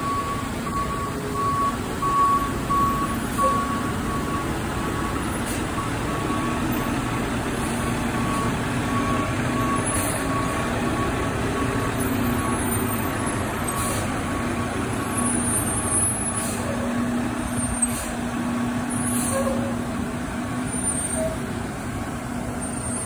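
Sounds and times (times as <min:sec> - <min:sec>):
backup alarm beeping: 0:00.0 - 0:06.8
truck diesel engine running: 0:00.0 - 0:23.0.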